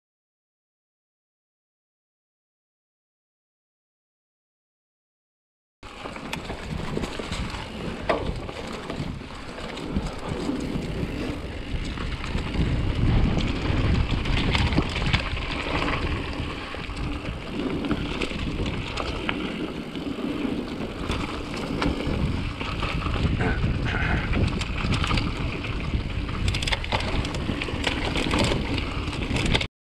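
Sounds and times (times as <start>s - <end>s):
bike rattling over bumps: 5.8s - 29.7s
bike tyres on dirt: 5.8s - 29.7s
wind buffeting microphone: 6.4s - 29.7s.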